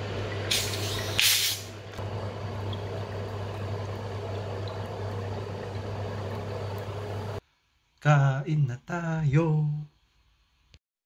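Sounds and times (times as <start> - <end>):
cola pouring and fizzing: 0.3 - 7.4
bottle cap carbonation hiss: 0.5 - 1.8
steady low hum: 1.8 - 7.5.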